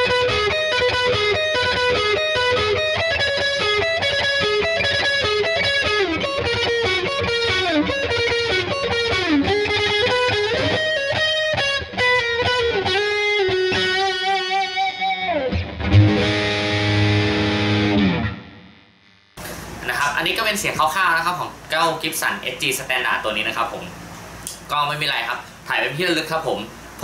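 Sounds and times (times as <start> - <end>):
distorted electric guitar lead: 0.0 - 19.6.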